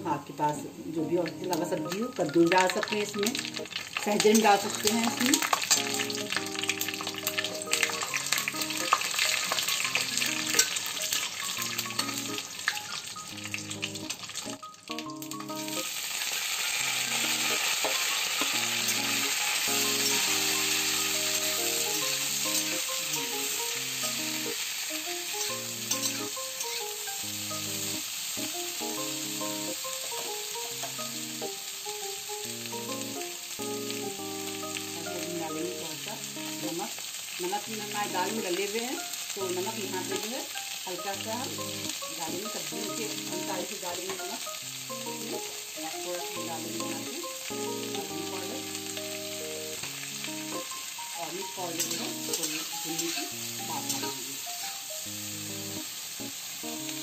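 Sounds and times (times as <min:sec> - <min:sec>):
soft background melody: 0:00.0 - 0:57.0
vegetables sizzling in oil: 0:00.0 - 0:57.0
spoon scraping pan: 0:25.2 - 0:27.0, 0:51.5 - 0:54.2.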